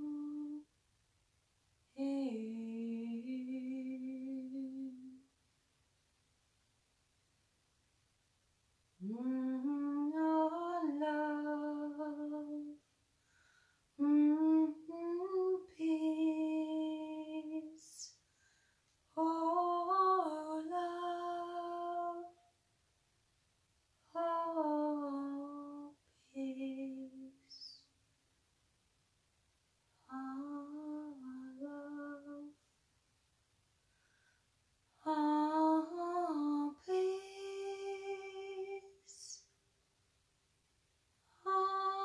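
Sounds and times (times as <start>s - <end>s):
woman singing wordless held notes: 0.0s - 0.7s, 2.0s - 5.3s, 9.0s - 12.8s, 14.0s - 18.2s, 19.1s - 22.5s, 24.0s - 27.8s, 29.9s - 32.6s, 34.9s - 39.5s, 41.3s - 42.0s
woman breathing: 13.1s - 14.0s, 18.2s - 19.0s, 33.8s - 34.6s.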